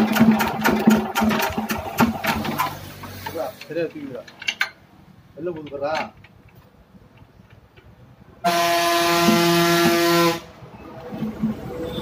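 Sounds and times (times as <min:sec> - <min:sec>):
vehicle horn blaring: 0:08.4 - 0:10.6, 0:11.8 - 0:12.0.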